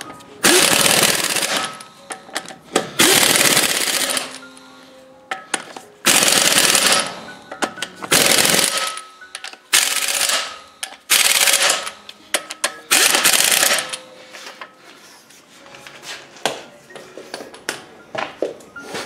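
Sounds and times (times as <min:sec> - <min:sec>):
impact wrench rattling: 0:00.4 - 0:04.4, 0:05.3 - 0:14.0.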